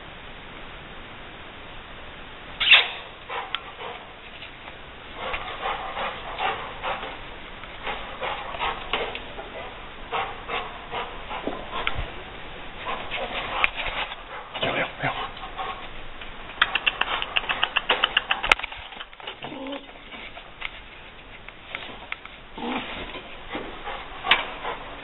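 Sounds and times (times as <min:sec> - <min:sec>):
dog barking and yelping: 0:02.7 - 0:04.2, 0:05.2 - 0:07.2.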